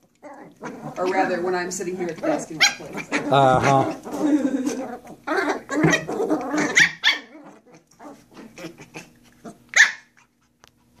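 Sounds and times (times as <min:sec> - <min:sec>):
puppies growling: 0:00.0 - 0:11.0
puppy yipping: 0:05.0 - 0:08.8, 0:09.4 - 0:10.3.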